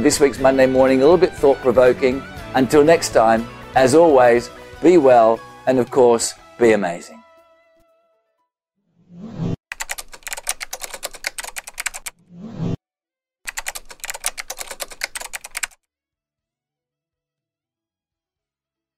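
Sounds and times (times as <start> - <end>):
rapid keyboard typing clicks: 9.7 - 12.1, 13.5 - 15.8.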